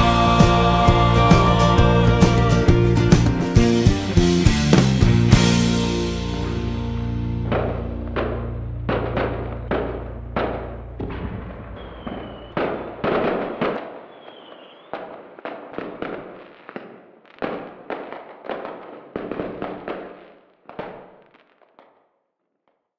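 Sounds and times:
fireworks bangs and crackling: 0.0 - 6.7, 7.4 - 22.1
firework whistles: 11.6 - 15.1.

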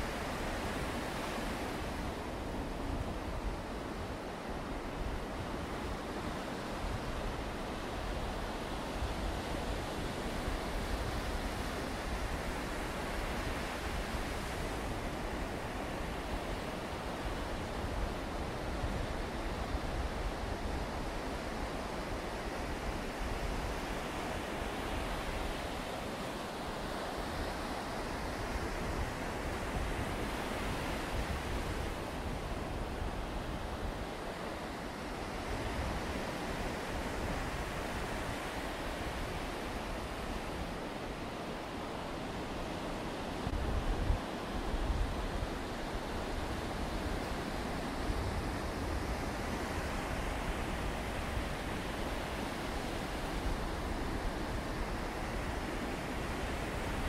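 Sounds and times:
wind rumbling on microphone: 42.0 - 57.0.

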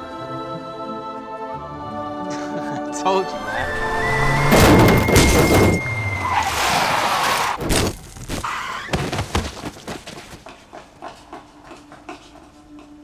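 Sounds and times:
heavy thuds: 3.7 - 6.3.

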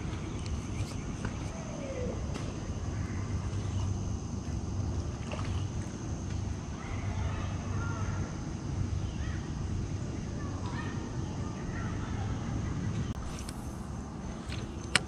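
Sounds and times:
faint bird chirps: 9.0 - 9.5.

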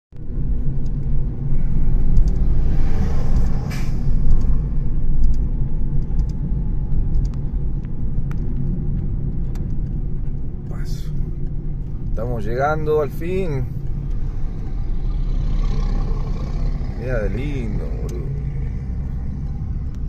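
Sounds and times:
car engine and tyre rumble: 0.1 - 20.0
truck passing whoosh: 1.3 - 5.9, 13.7 - 20.0.

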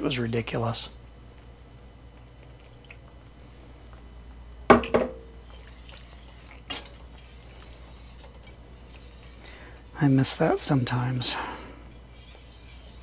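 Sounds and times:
whisk scraping a metal pan: 5.4 - 13.0.

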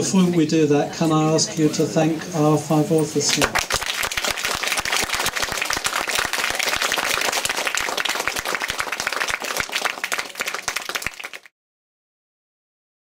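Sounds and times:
audience applauding: 3.4 - 11.5.

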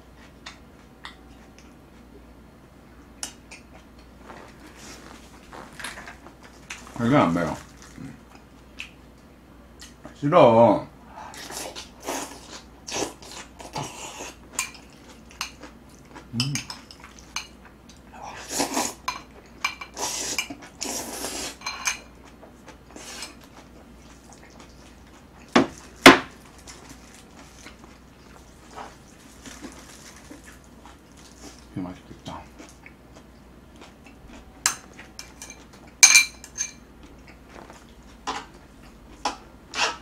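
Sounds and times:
chewing: 11.3 - 36.0, 37.0 - 40.0.

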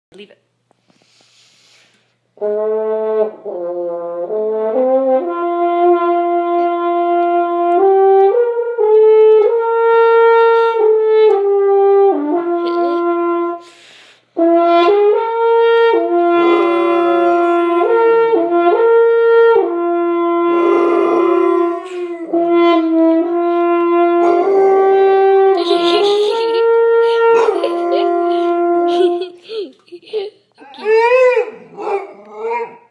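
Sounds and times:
french horn held notes: 14.4 - 29.3.

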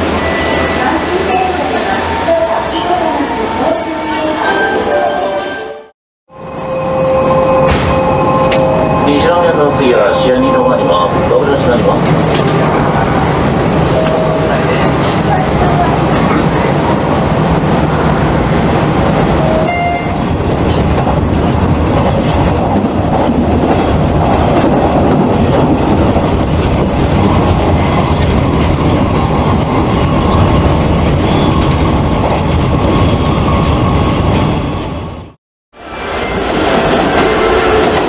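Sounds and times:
train wheels on track: 7.6 - 38.0.

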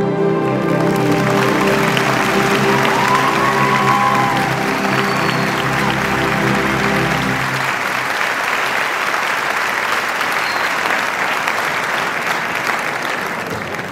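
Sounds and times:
held music chord: 0.0 - 8.2
audience applauding: 0.4 - 13.9.

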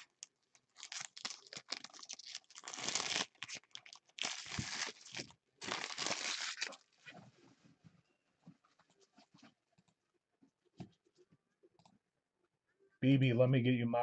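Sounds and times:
foil wrapper crinkling: 0.0 - 7.0.

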